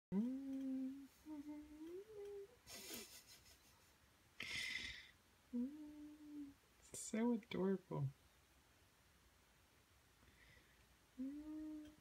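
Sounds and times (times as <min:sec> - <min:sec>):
woman humming softly: 0:00.1 - 0:03.2, 0:05.5 - 0:06.6, 0:11.2 - 0:12.0.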